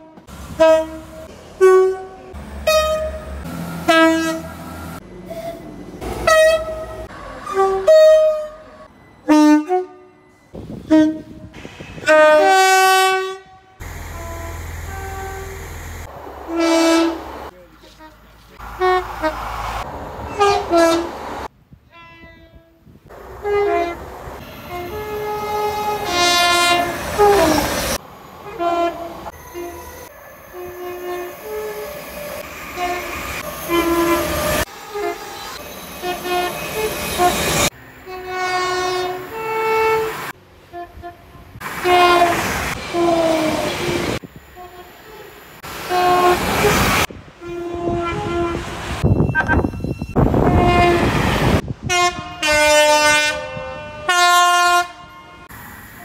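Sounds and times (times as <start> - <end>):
train horn blasts: 0.0 - 4.7, 6.2 - 17.2, 17.8 - 21.1, 21.8 - 27.6, 28.4 - 44.0, 44.6 - 45.3, 45.9 - 49.1, 49.7 - 55.6
trains passing: 0.0 - 21.6, 23.1 - 56.0.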